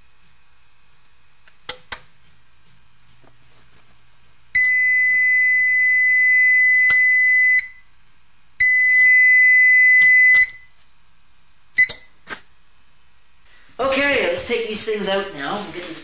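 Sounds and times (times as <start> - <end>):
oven timer alarm beep: 4.6 - 7.9, 8.6 - 10.7, 11.8 - 12.1
key-press beep: 8.6 - 10.6.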